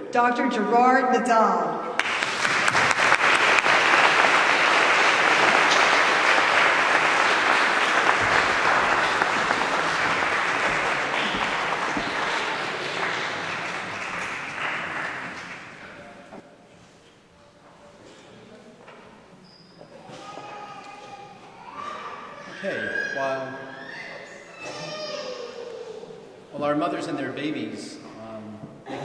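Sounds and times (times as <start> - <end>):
audience applauding: 2.0 - 16.2.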